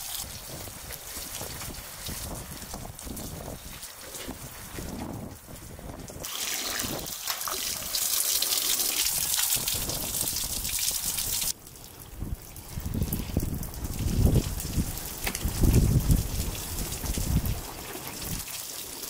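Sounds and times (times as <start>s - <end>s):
water pouring in steady stream: 0.0s - 19.0s.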